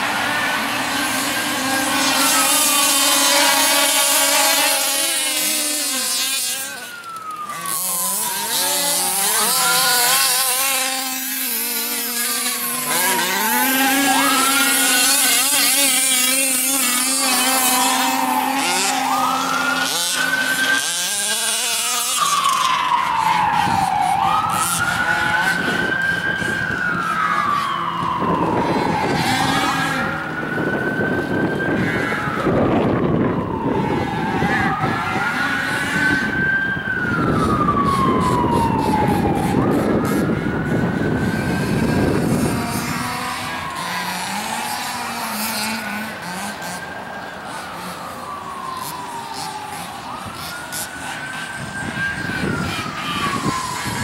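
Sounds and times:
rc car engines revving: 0.0 - 54.0.

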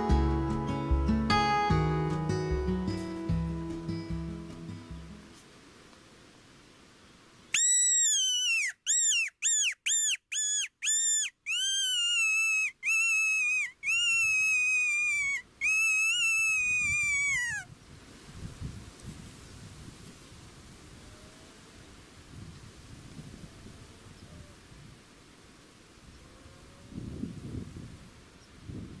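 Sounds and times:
predator call squealing: 7.6 - 17.7.

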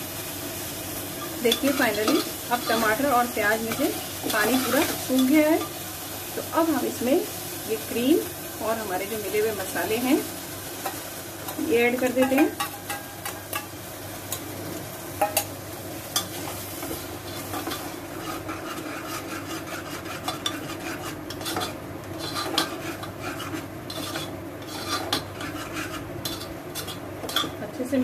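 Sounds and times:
gravy sizzling: 0.0 - 28.0
ladle scraping a pan: 16.8 - 27.6.

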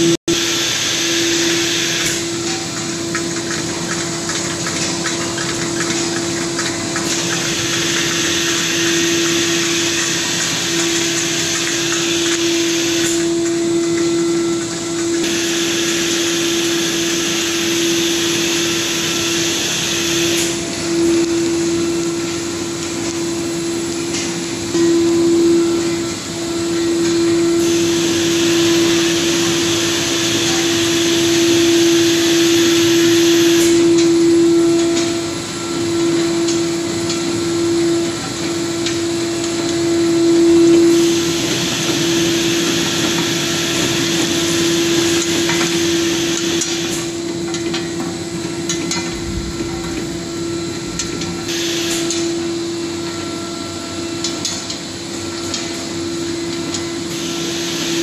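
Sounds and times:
packing machine humming: 0.0 - 58.0.

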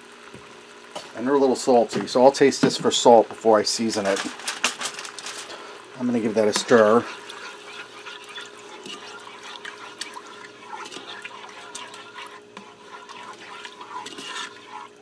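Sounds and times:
faint steady hum: 0.0 - 15.0
spoon scraping pot: 6.4 - 15.0
liquid sloshing: 6.5 - 15.0.

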